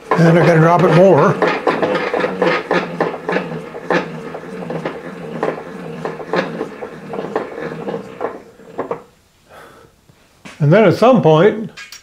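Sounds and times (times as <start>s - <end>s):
regular ticking: 0.0s - 9.0s
milling machine drive hum: 0.0s - 9.3s.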